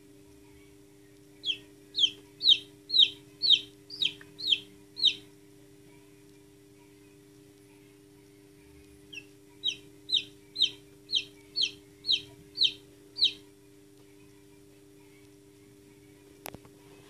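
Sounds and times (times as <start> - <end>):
chick peeping: 1.4 - 5.3, 9.1 - 13.5.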